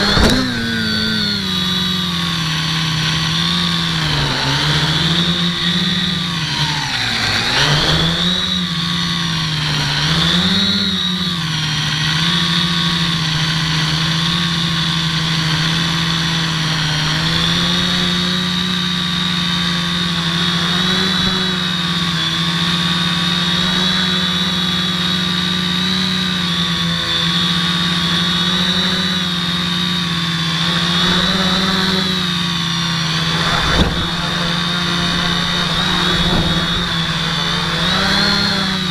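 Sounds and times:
drone landing knock: 0:00.0 - 0:01.3, 0:33.1 - 0:38.4
drone motors whining: 0:00.0 - 0:38.9.

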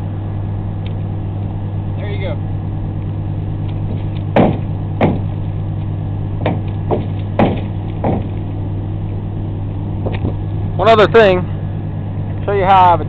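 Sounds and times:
steady low hum: 0:00.0 - 0:13.0
board knocking against truck: 0:03.9 - 0:05.4, 0:06.4 - 0:08.4.

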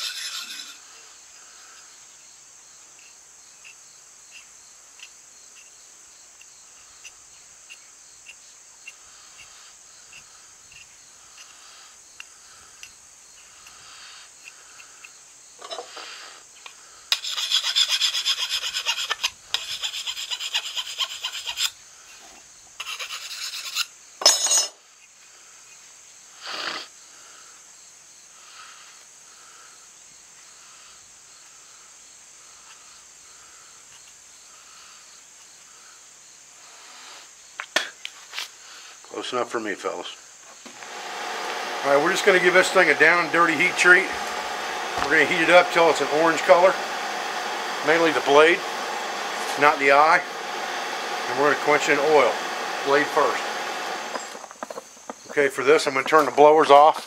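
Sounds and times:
file rasping on metal: 0:00.0 - 0:00.8, 0:17.1 - 0:21.8, 0:22.8 - 0:23.9.

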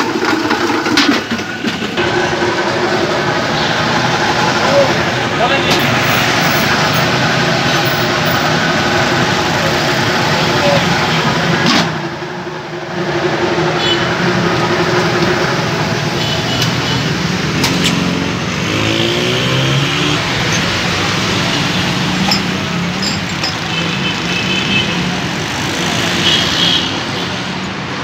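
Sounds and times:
passing cars: 0:00.0 - 0:28.0
people's voices: 0:03.3 - 0:11.8.

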